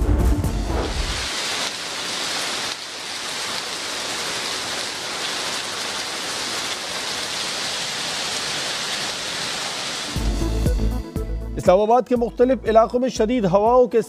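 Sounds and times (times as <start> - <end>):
heavy rain falling: 0.8 - 10.6.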